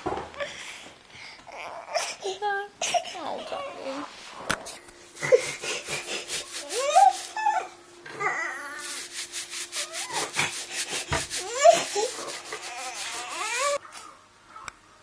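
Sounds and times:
toddler whimpering and crying: 0:01.5 - 0:04.1, 0:06.2 - 0:08.9, 0:11.3 - 0:13.8
hand rubbing on nappy: 0:05.4 - 0:07.5, 0:08.8 - 0:13.8.

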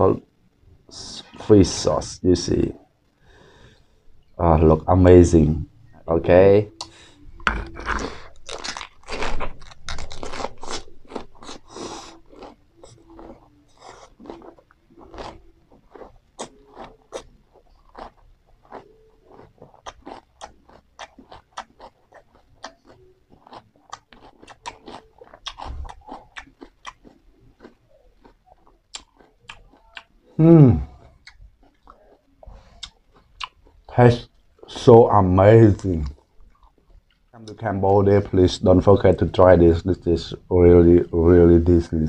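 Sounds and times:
crunchy chewing: 0:07.6 - 0:34.6, 0:35.7 - 0:37.5.

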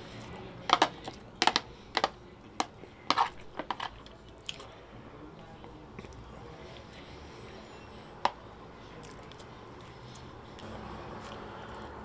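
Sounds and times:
chewing clicks and smacks: 0:04.0 - 0:04.7.

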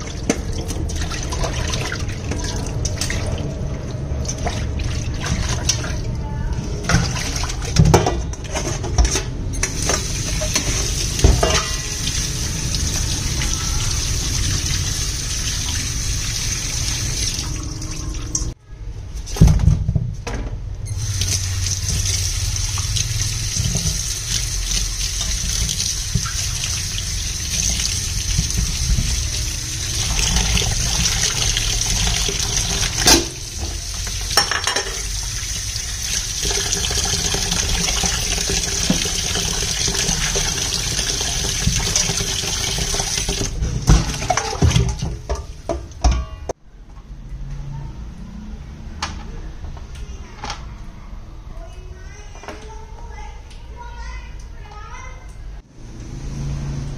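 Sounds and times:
water splashing: 0:00.0 - 0:07.8.

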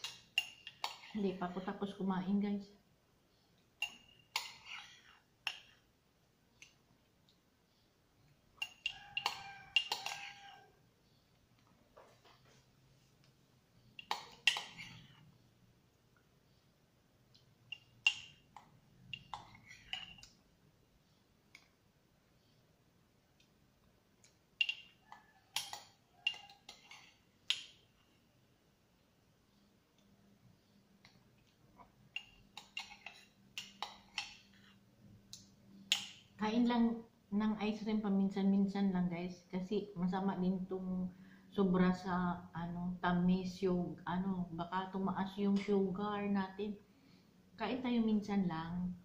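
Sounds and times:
spoon scraping ceramic mug: 0:03.8 - 0:05.8, 0:08.6 - 0:10.7, 0:14.0 - 0:15.2, 0:19.1 - 0:20.3, 0:24.6 - 0:27.2.

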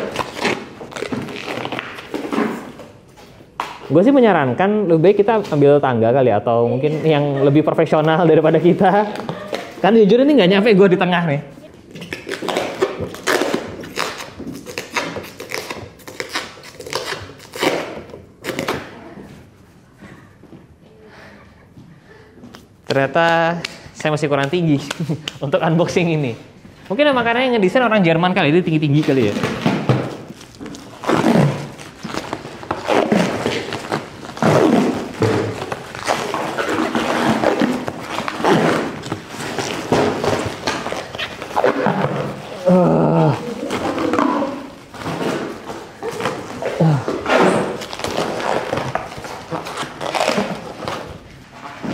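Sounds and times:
plastic wrap crinkling: 0:00.0 - 0:03.0, 0:11.6 - 0:18.6, 0:28.6 - 0:51.9
plastic car cover rustling: 0:28.9 - 0:42.6, 0:43.4 - 0:51.9
squeaky groans of cover rubbing: 0:30.1 - 0:42.7, 0:43.4 - 0:51.8.

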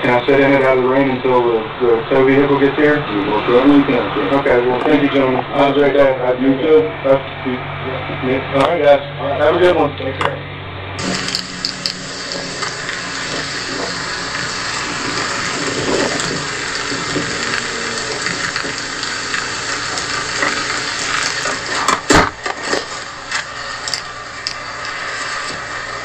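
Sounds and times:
rain: 0:11.0 - 0:26.0.

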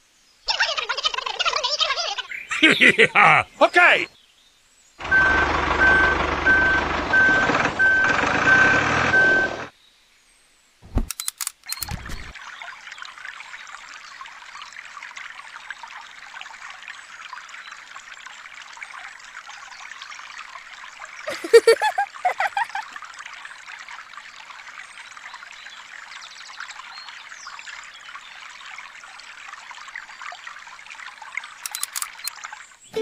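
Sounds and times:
reversing beeper: 0:05.0 - 0:09.7
truck engine rumbling: 0:05.0 - 0:09.7
short clicks: 0:10.8 - 0:12.3, 0:31.6 - 0:32.3
water trickling onto sand: 0:12.3 - 0:32.9.

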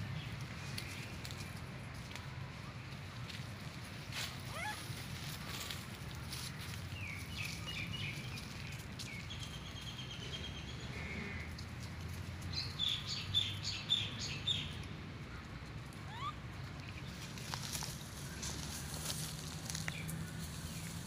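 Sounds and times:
birds chirping: 0:12.5 - 0:21.0.

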